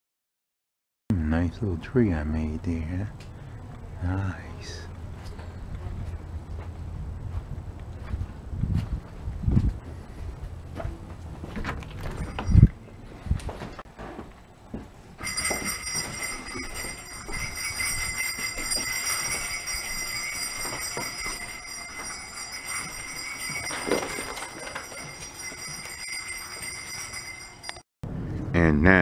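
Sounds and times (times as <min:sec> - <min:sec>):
jingle bells shaking: 0:15.2 - 0:27.8.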